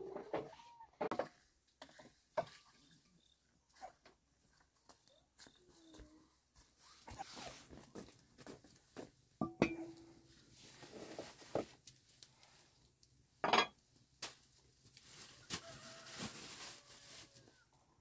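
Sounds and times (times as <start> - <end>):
kitchenware clinking and knocking: 9.4 - 10.1, 13.4 - 13.8.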